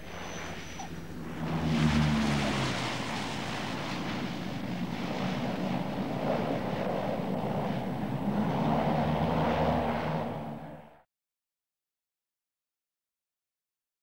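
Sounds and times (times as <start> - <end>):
turboprop engines droning: 0.0 - 11.1.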